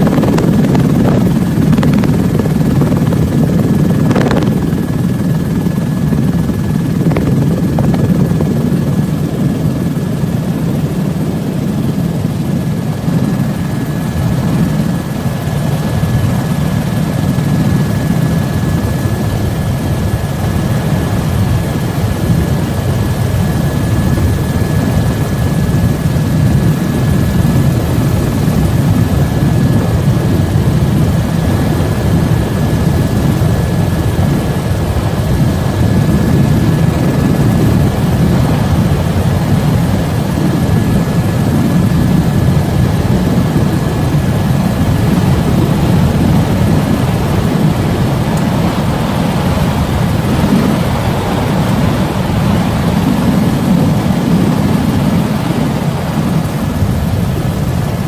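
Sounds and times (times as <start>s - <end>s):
high whine: 0.0s - 13.5s
helicopter engine and rotor: 0.0s - 58.0s.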